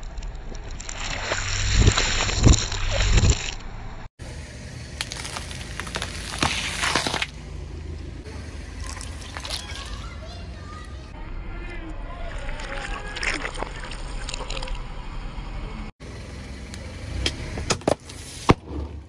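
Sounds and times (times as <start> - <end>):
tyre crushing drink pouches: 5.0 - 7.4, 8.8 - 10.0
tyre crushing plant stalks: 5.0 - 7.4.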